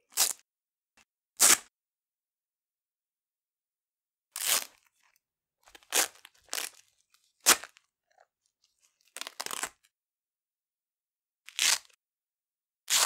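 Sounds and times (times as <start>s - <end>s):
velcro ripping: 0.1s - 0.4s, 1.4s - 1.7s, 4.4s - 4.8s, 5.7s - 6.8s, 7.4s - 7.8s, 9.2s - 9.8s, 11.5s - 12.0s.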